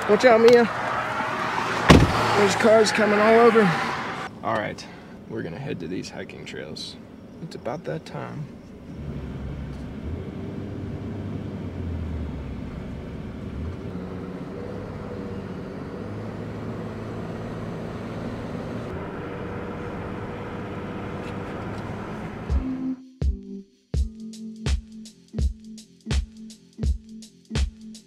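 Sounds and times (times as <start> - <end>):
truck engine and road noise: 0.0 - 23.0
music with a beat: 22.4 - 28.0.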